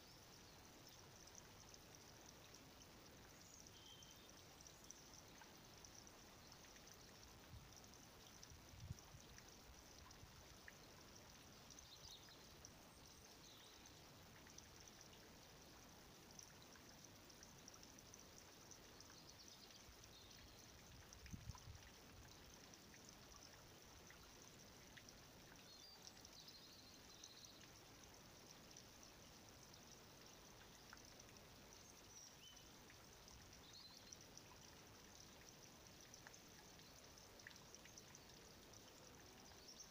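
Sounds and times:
faint outdoor hiss: 0.0s - 39.9s
faint high chirps: 3.3s - 6.0s.

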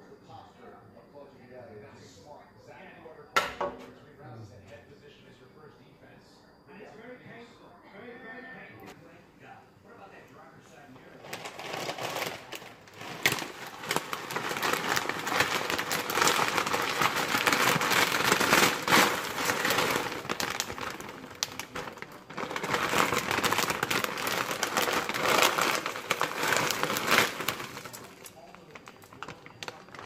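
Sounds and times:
plastic bag crinkling: 11.0s - 30.0s.

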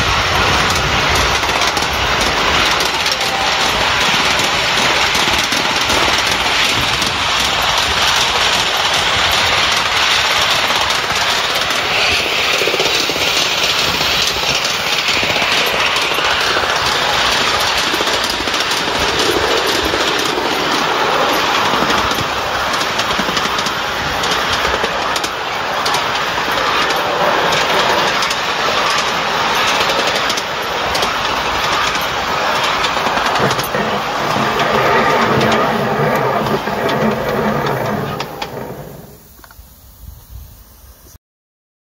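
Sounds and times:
wheels clicking on rails: 0.0s - 40.2s
steam locomotive running: 0.0s - 41.2s.

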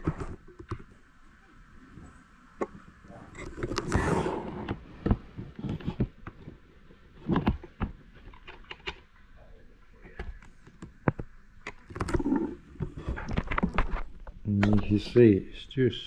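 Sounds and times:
small clicks and knocks: 7.2s - 9.2s, 10.1s - 14.9s.

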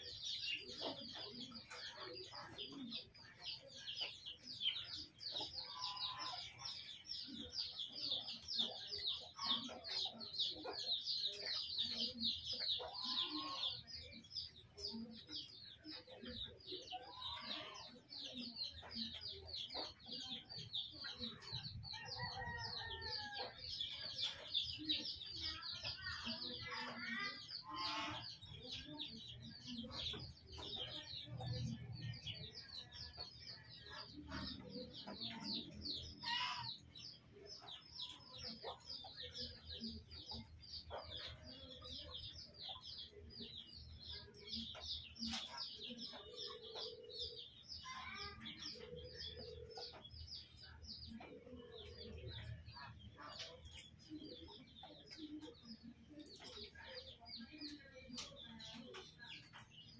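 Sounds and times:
chicken clucking: 0.0s - 59.9s
small birds chirping: 0.0s - 59.9s.

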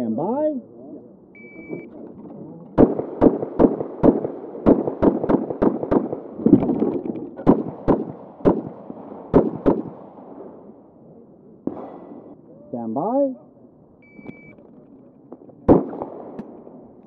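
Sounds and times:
pistol shots: 2.8s - 6.5s, 7.4s - 10.4s, 11.6s - 12.3s, 15.3s - 16.9s.

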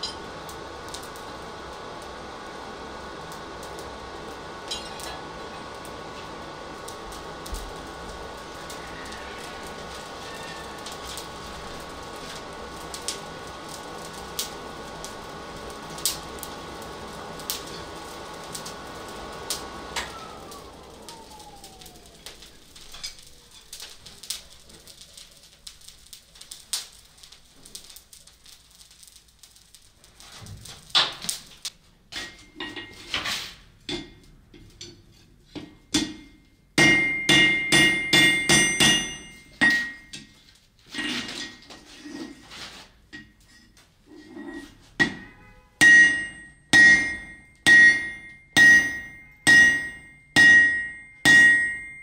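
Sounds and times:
forge blower running: 0.0s - 25.8s
fire crackling: 0.0s - 52.0s
hammer striking iron on anvil: 4.7s - 5.2s, 32.1s - 32.9s, 33.9s - 35.0s, 35.6s - 40.3s, 45.0s - 52.0s.

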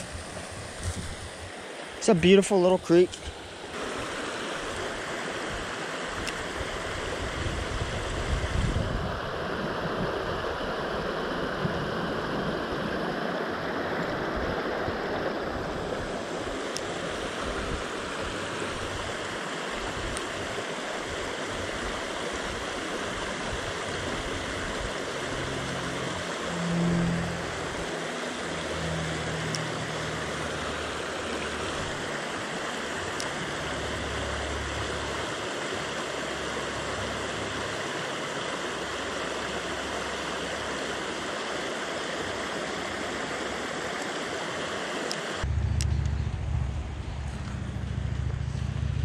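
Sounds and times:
creek water rushing over rocks: 0.0s - 45.5s
low rumble: 25.4s - 29.6s, 45.4s - 49.0s.

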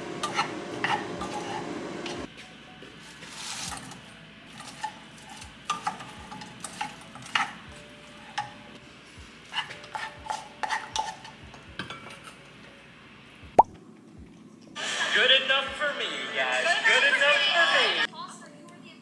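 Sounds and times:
spatula scraping a saucepan: 0.2s - 2.3s, 3.1s - 8.6s, 9.4s - 12.4s.

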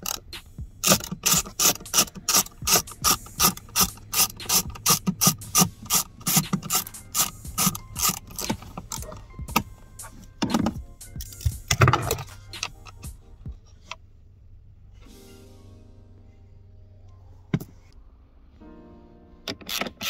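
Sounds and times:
ratchet wrench clicking: 0.0s - 13.2s.

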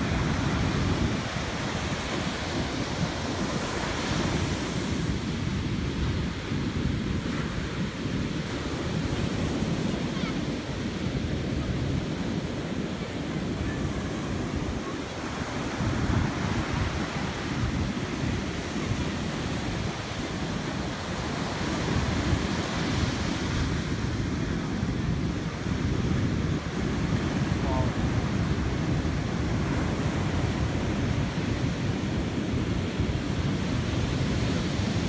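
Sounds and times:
surf breaking on a beach: 0.0s - 35.0s
wind rumbling on microphone: 0.0s - 35.0s.

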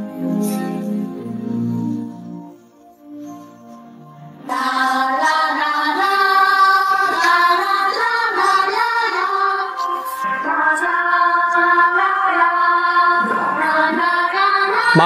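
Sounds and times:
quiet instrumental music: 0.0s - 15.0s
song with singing voices: 4.2s - 15.0s.

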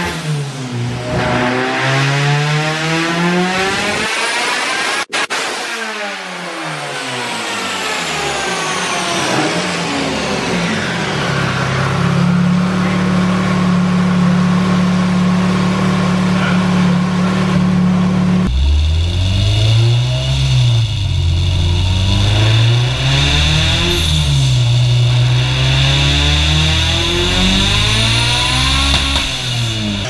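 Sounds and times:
engine revving: 0.0s - 5.1s, 6.0s - 30.0s
steady high whine: 18.0s - 30.0s.

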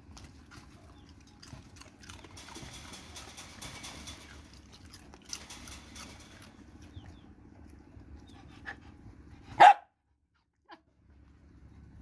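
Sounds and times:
dog barking: 9.6s - 10.0s.

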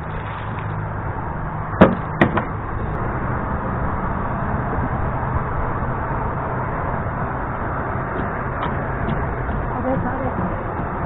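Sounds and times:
rushing outdoor background: 0.0s - 11.0s
sharp knocks: 1.8s - 2.6s, 8.1s - 11.0s.

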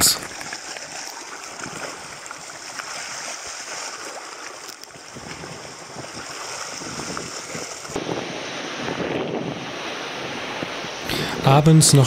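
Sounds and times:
small splashes: 0.0s - 9.0s
water sloshing over rocks: 0.0s - 11.1s.

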